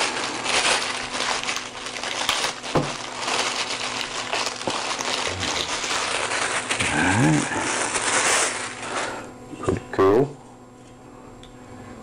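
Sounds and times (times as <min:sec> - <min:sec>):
plastic bag crinkling: 0:00.0 - 0:09.3.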